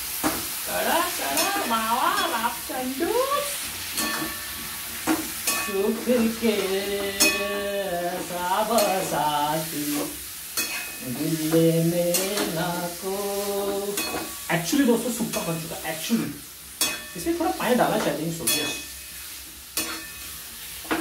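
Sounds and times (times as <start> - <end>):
chicken frying in a pan: 0.0 - 21.0
spoon scraping and knocking pan: 4.0 - 9.3, 9.9 - 12.7, 13.6 - 14.5, 17.9 - 21.0.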